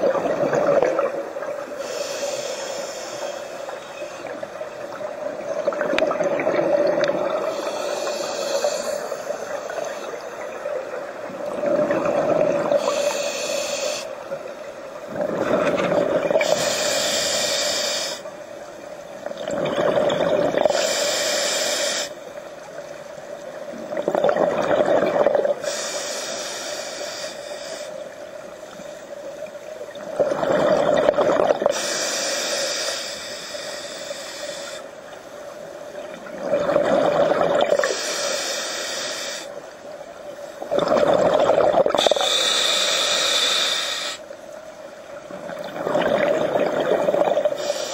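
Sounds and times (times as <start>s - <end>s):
exhaled bubbles rushing: 0.0s - 1.4s, 5.6s - 7.5s, 11.5s - 12.8s, 15.1s - 16.5s, 19.4s - 20.7s, 23.9s - 25.6s, 29.9s - 31.7s, 36.2s - 37.9s, 40.6s - 42.1s, 45.4s - 47.6s
diver breathing through regulator: 1.8s - 4.2s, 7.4s - 10.3s, 12.6s - 14.2s, 16.4s - 18.3s, 20.6s - 22.2s, 25.6s - 28.0s, 31.6s - 35.0s, 37.7s - 39.6s, 40.8s - 44.3s, 47.0s - 47.9s.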